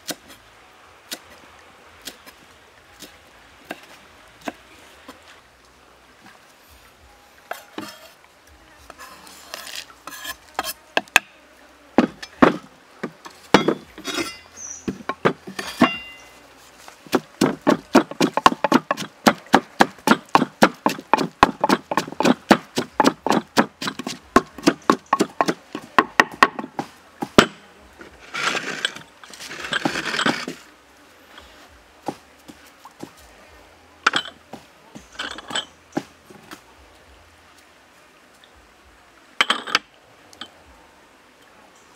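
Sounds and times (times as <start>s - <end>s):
rough scraping: 7.5s - 8.2s, 8.9s - 10.8s, 12.0s - 30.7s
pestle pounding in wooden mortar: 12.0s - 14.1s, 14.8s - 16.2s, 17.0s - 27.6s, 28.4s - 30.6s
scraping off wooden board: 28.1s - 30.6s.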